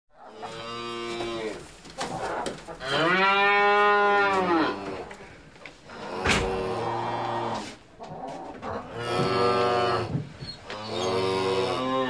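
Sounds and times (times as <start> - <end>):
cattle mooing: 2.8 - 5.1, 8.8 - 10.1, 10.7 - 12.0.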